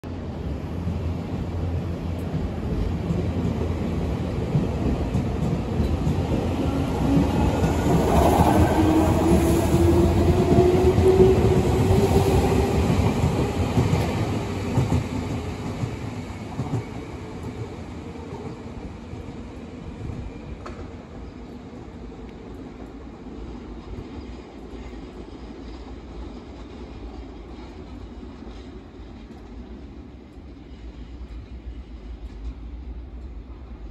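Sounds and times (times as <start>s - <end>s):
electric train passing: 0.1s - 33.9s.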